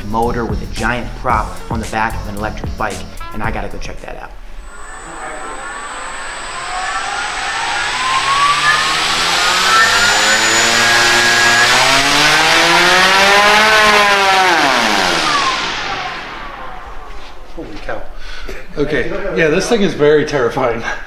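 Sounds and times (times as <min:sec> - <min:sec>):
electric motor whine: 0:04.6 - 0:17.8
propeller wash rushing: 0:04.6 - 0:17.8.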